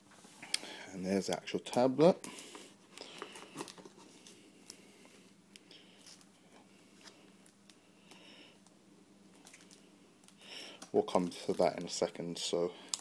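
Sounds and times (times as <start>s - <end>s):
low steady hum: 0.0s - 13.0s
plastic wrapping rustling: 1.5s - 4.8s, 9.3s - 13.0s.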